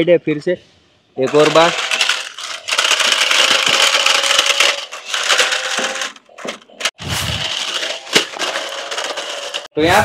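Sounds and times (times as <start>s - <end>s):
wheels grinding over rods and gravel: 1.3s - 9.8s.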